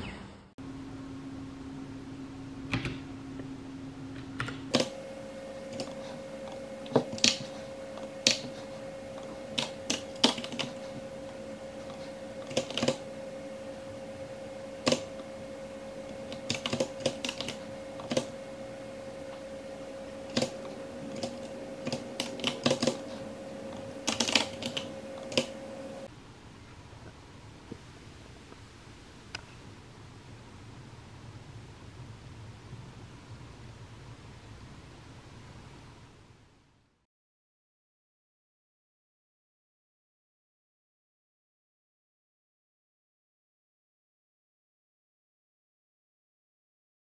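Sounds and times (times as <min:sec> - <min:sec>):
faint steady hum: 0:00.0 - 0:37.1
keyboard keys clicking: 0:05.7 - 0:13.1, 0:14.8 - 0:15.3, 0:16.1 - 0:18.4, 0:20.1 - 0:26.0.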